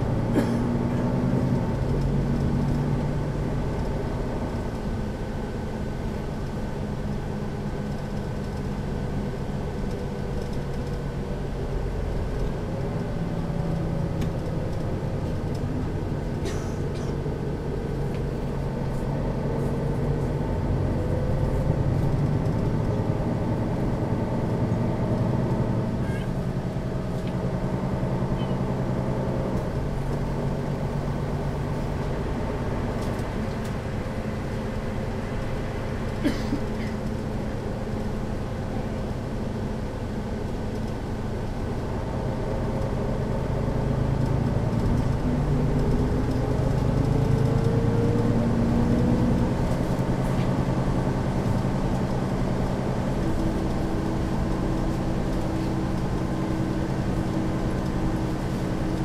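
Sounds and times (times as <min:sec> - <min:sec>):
bus diesel engine idling: 0:00.0 - 0:59.0.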